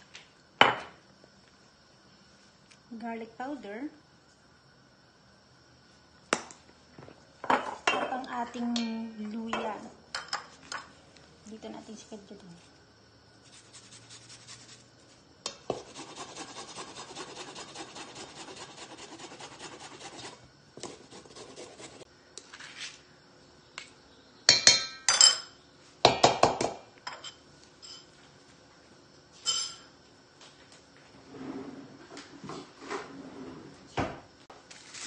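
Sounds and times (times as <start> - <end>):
ginger grated on rasp: 15.7 - 22.0.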